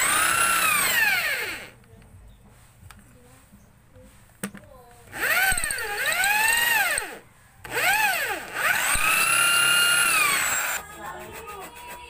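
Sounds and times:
electric drill boring into wood: 0.0s - 1.8s, 5.1s - 10.8s
drill trigger click: 5.1s - 10.8s.

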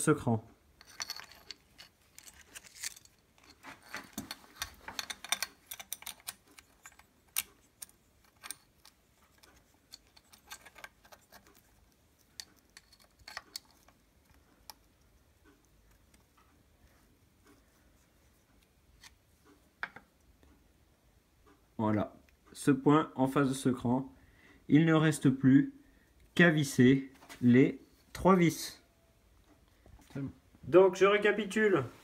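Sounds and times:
light metallic clicks and clinks: 0.8s - 14.9s.

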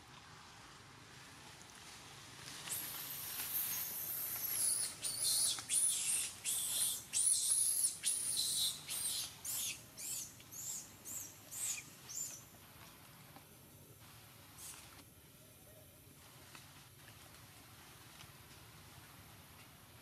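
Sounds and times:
shrill high-pitched animal calls: 2.7s - 12.4s.

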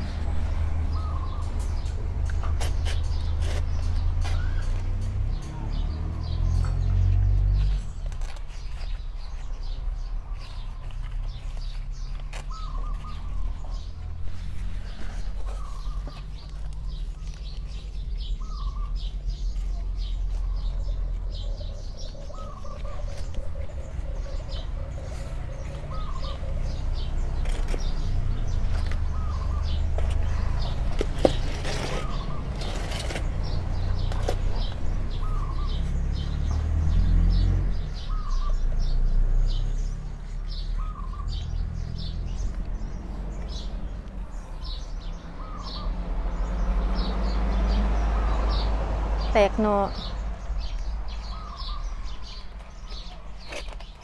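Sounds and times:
birds chirping: 0.0s - 54.0s
rustling of soil and dry leaves: 0.0s - 54.0s.

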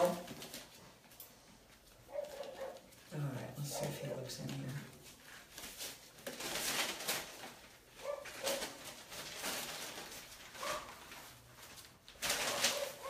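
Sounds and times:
puppies scrabbling at a basket: 0.0s - 1.0s, 2.0s - 13.0s.

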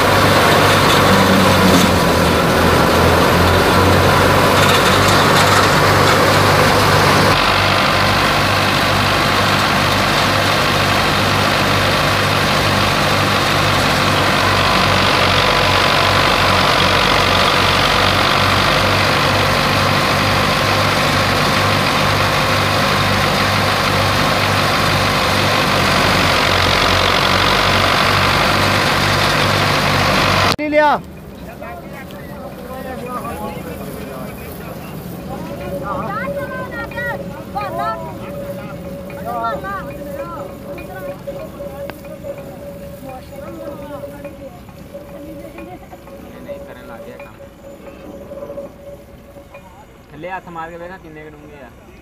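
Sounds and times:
thresher whirring and rushing: 0.0s - 30.8s
tractor diesel engine running: 0.0s - 52.0s.

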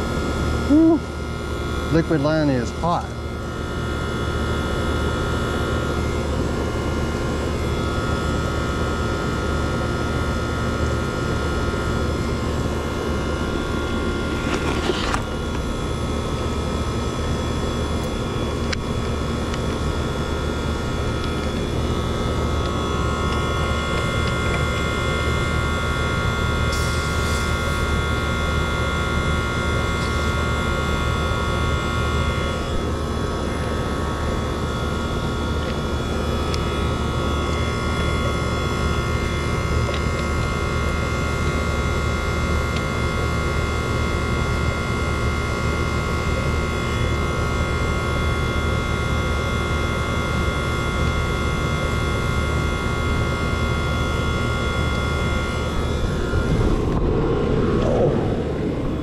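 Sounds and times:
compressor hum: 0.0s - 59.0s
condenser fan blowing: 0.0s - 59.0s.

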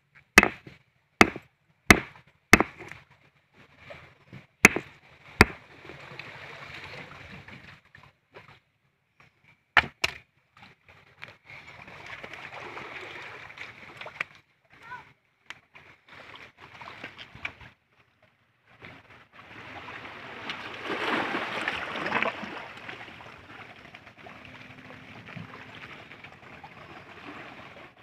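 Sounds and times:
sharp knocks: 0.4s - 2.9s, 4.6s - 5.6s.

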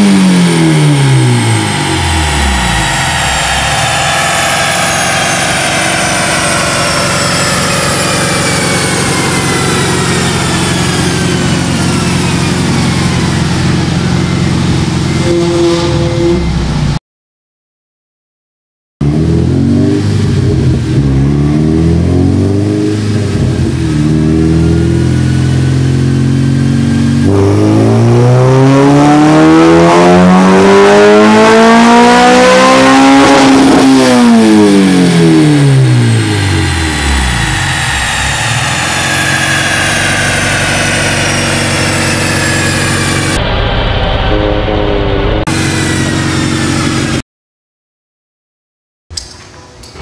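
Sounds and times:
car engine revving on dyno: 0.0s - 17.0s, 19.0s - 47.2s.

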